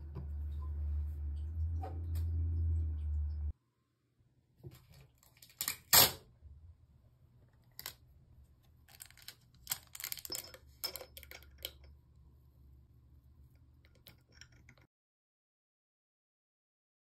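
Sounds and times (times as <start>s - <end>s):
tape crinkling and crackling: 8.8s - 11.4s.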